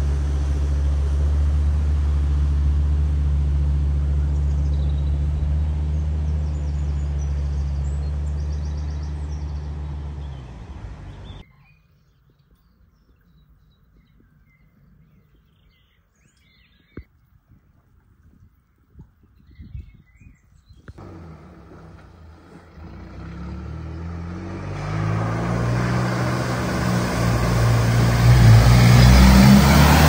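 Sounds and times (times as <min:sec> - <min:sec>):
car engine droning: 0:00.0 - 0:11.4, 0:21.0 - 0:30.0
faint birdsong: 0:03.9 - 0:30.0.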